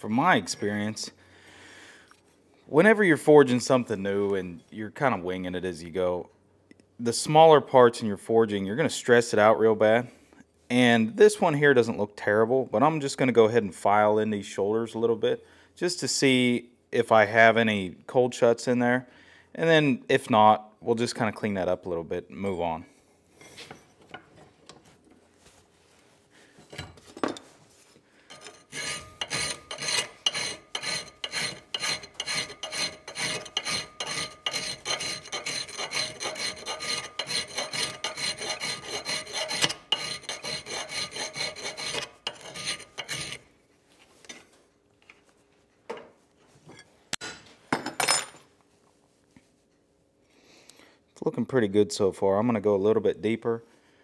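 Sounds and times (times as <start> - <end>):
file rasping on steel: 28.3 - 43.4.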